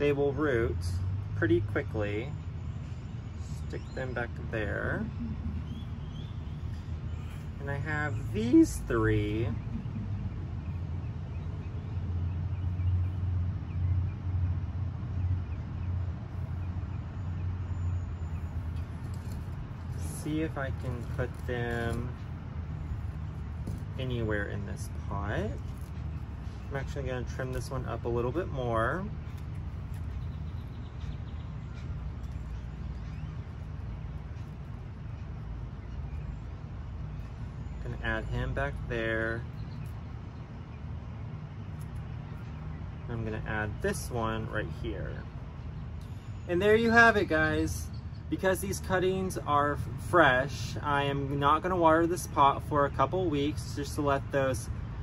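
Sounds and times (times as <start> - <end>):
steady low rumble: 0.0 - 55.0
faint bird chirps: 2.3 - 14.2
pulsing low rumble: 5.0 - 11.7.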